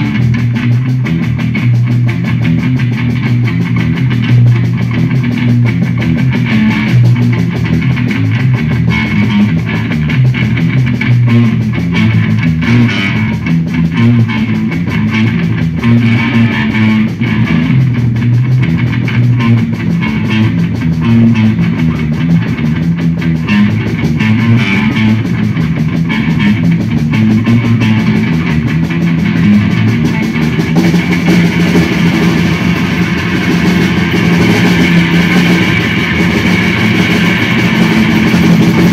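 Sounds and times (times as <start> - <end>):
drum kit: 0.0 - 38.9
electric bass guitar: 0.0 - 38.9.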